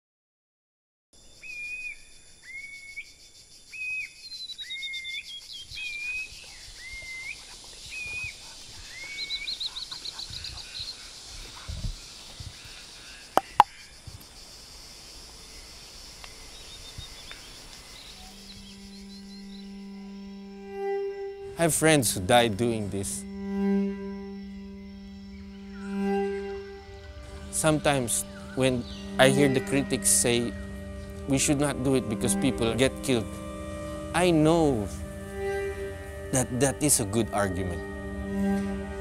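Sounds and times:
birds chirping: 1.2s - 14.0s, 15.6s - 39.0s
high insect buzz: 1.2s - 39.0s
bird whistled call: 1.4s - 11.0s.

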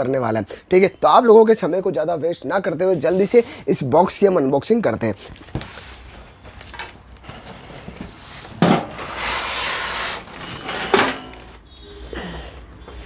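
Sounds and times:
long rustling scrape: 3.0s - 3.6s, 7.3s - 11.6s
squeaky rubbing of foam: 9.0s - 10.9s.

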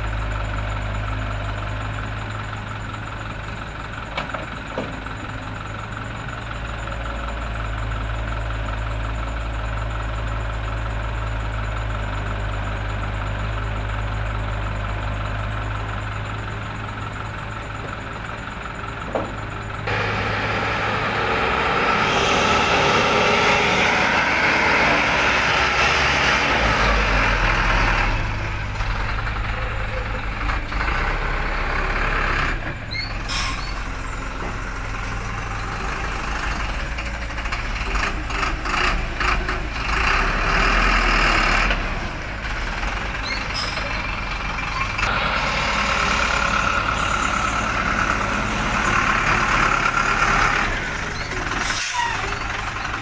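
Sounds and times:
diesel engines running: 0.0s - 53.0s
excavator loading soil: 17.6s - 36.3s.

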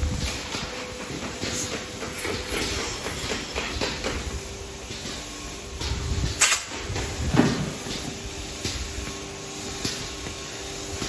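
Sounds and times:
milking vacuum hum and hiss: 0.0s - 11.0s.

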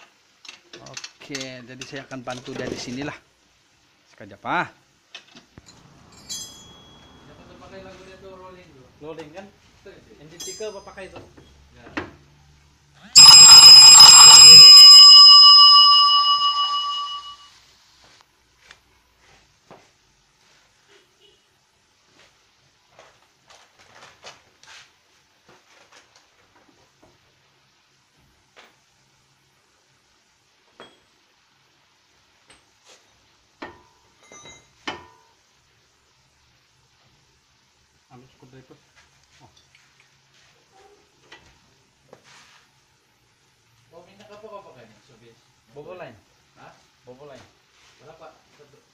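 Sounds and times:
metallic bell-like ring: 6.2s - 7.4s, 13.2s - 17.4s.

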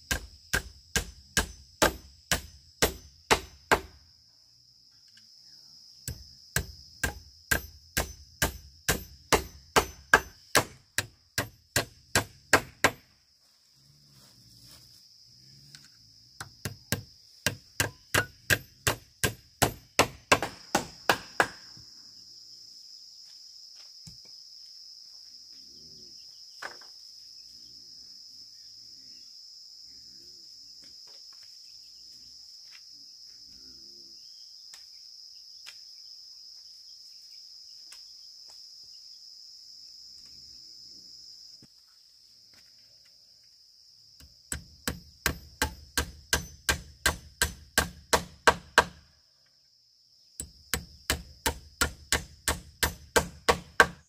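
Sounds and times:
hand tool striking bamboo: 0.0s - 4.0s, 6.1s - 13.1s, 16.4s - 21.6s, 44.2s - 49.0s, 50.4s - 54.0s
insects droning: 0.0s - 54.0s.

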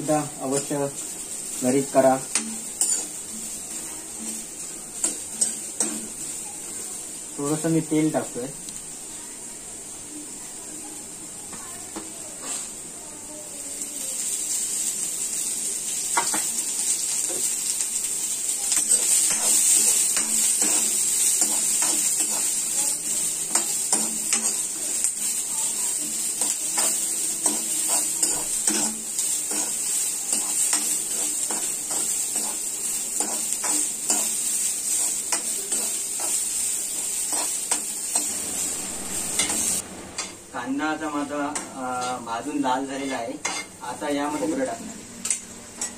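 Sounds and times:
onions sizzling in hot oil: 0.0s - 45.9s
steel spoon scraping pan: 25.8s - 40.3s.

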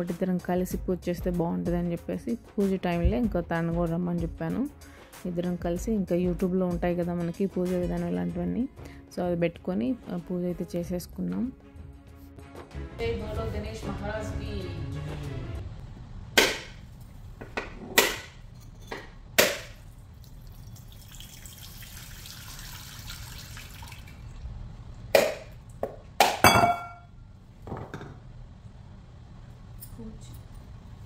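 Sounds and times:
coconut water splashing into bowl: 19.4s - 24.3s.

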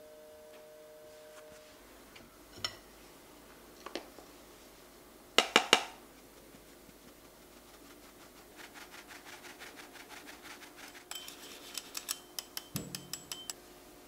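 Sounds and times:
sieve shaken with soft ticks: 6.0s - 13.6s
ringing taps of metal sieve: 11.1s - 13.6s.

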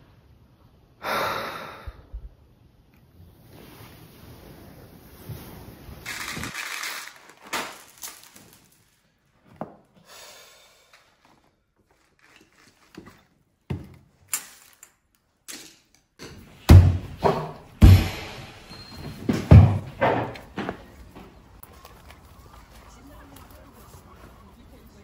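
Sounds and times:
heavy thumps: 16.3s - 21.0s.

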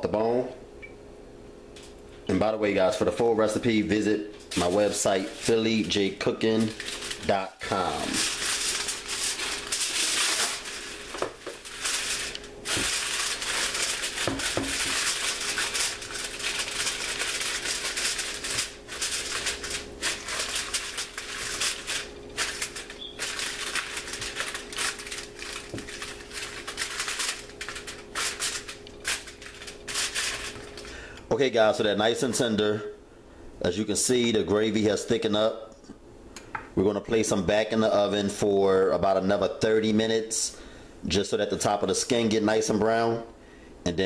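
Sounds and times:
aluminum foil crinkling: 4.4s - 31.1s.

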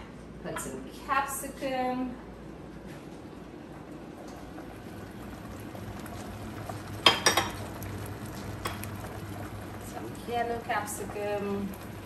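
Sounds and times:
pots bubbling: 2.2s - 12.0s
cookware clinking: 7.0s - 7.6s.

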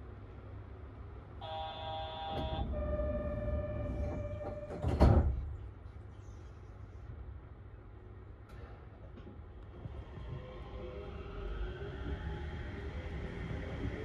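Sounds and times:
train humming: 0.6s - 5.0s
train doors shutting: 1.4s - 5.6s.

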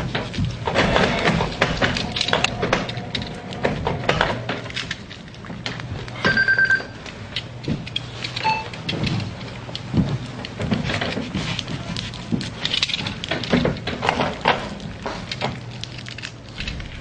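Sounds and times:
clicks and knocks: 0.0s - 17.0s
low hum: 0.0s - 17.0s
high beep: 6.2s - 7.0s, 8.4s - 8.7s.

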